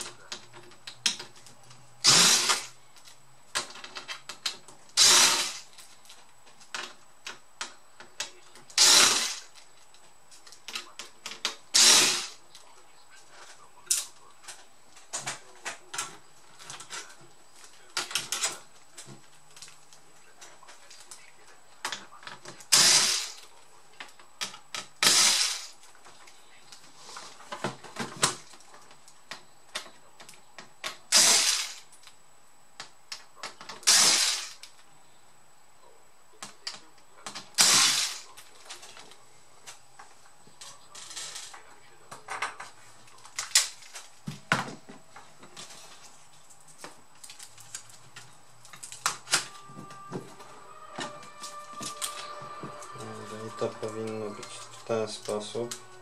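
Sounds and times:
electric screwdriver running: 0:02.0 - 0:02.7, 0:05.0 - 0:05.6, 0:08.8 - 0:09.5, 0:11.7 - 0:12.4, 0:22.7 - 0:23.4, 0:25.0 - 0:25.7, 0:31.1 - 0:31.8, 0:33.8 - 0:34.6, 0:37.6 - 0:38.2.

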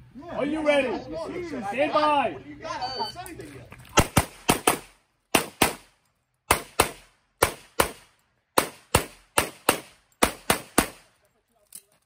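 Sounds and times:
rapid pistol shots: 0:04.0 - 0:05.9, 0:06.5 - 0:11.1.

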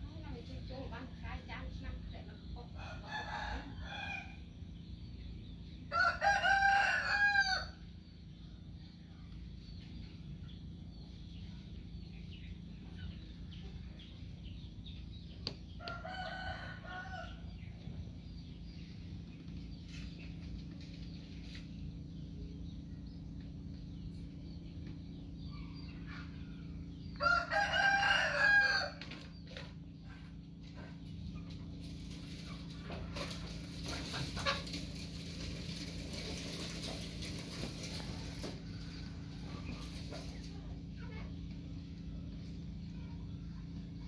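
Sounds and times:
steady low hum: 0:00.0 - 0:44.0
rooster crowing: 0:05.9 - 0:07.8, 0:15.8 - 0:17.5, 0:27.1 - 0:29.1.

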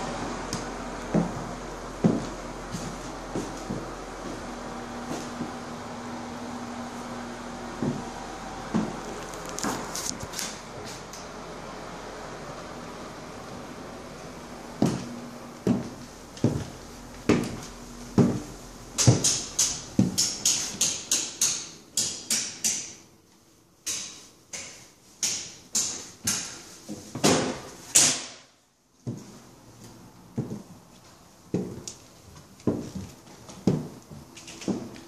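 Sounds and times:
hard-soled footsteps on floor: 0:00.5 - 0:05.7, 0:07.7 - 0:11.2, 0:14.8 - 0:20.7, 0:29.0 - 0:35.0.

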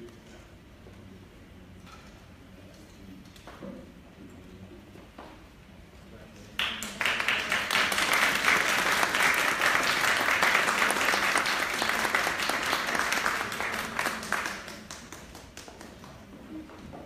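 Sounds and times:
audience applauding: 0:06.6 - 0:16.3.

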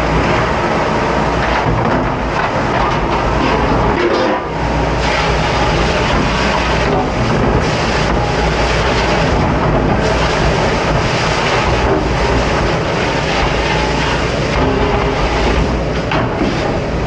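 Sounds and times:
low machine roar: 0:00.0 - 0:17.0
spray hose blasting water on metal: 0:04.5 - 0:17.0.

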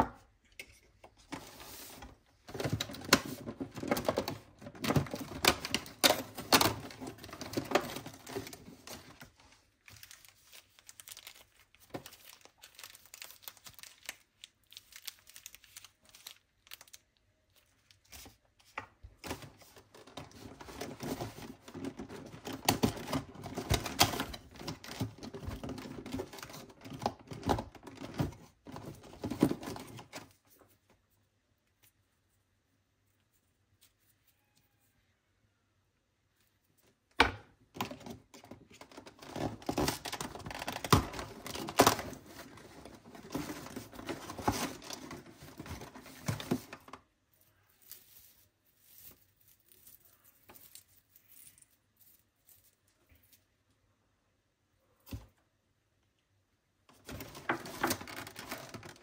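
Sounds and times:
plastic wrapping crinkling: 0:01.6 - 0:30.9, 0:37.7 - 0:53.5, 0:57.0 - 0:59.0.

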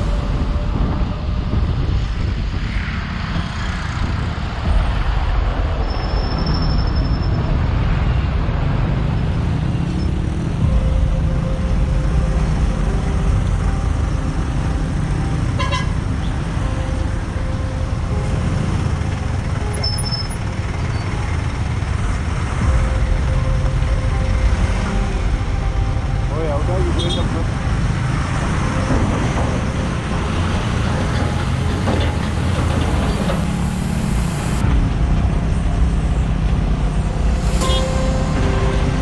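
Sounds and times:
engine and road noise rumble: 0:00.0 - 0:39.0
vehicle horn toot: 0:15.6 - 0:16.0, 0:26.9 - 0:27.4, 0:37.6 - 0:38.1.

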